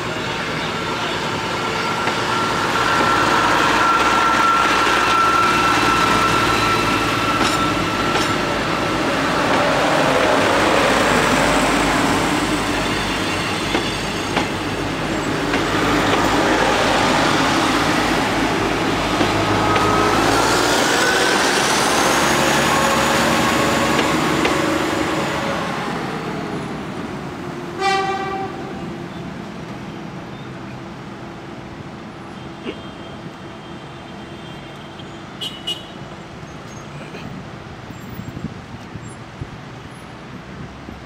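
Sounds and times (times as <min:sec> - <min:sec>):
train horn toot: 0:00.9 - 0:08.2, 0:27.8 - 0:28.8
train wheels rolling and clattering: 0:01.9 - 0:25.4.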